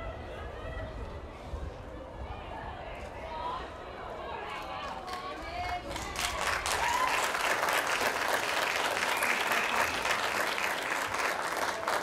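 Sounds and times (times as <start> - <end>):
spectators clapping: 4.9 - 12.0.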